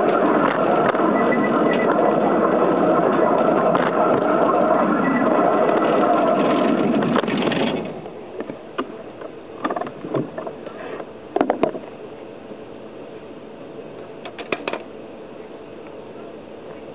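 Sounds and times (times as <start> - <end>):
model locomotive running: 0.0 - 8.4.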